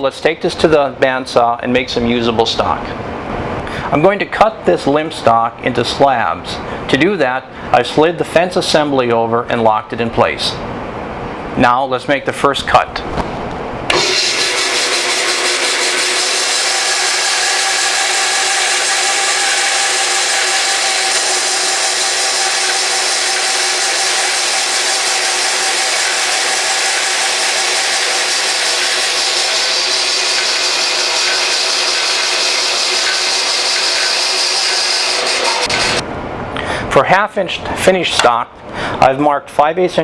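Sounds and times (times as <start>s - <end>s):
bandsaw cutting through log: 13.9s - 36.0s.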